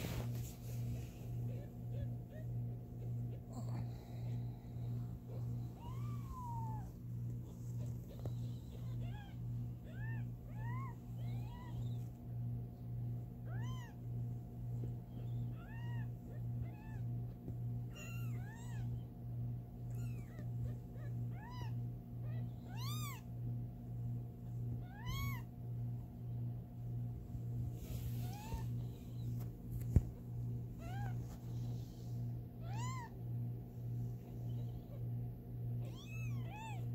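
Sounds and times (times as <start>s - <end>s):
kittens mewing: 0.8s - 12.2s, 19.9s - 23.4s, 24.7s - 25.6s, 27.8s - 29.4s, 30.7s - 31.3s, 32.6s - 33.2s, 35.8s - 36.9s.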